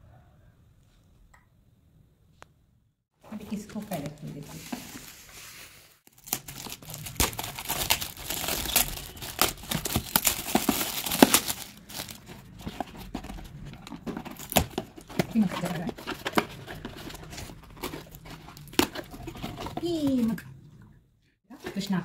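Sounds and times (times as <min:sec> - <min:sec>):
foil wrap tearing and crumpling: 0:04.8 - 0:19.8
cardboard box handling: 0:06.1 - 0:20.2.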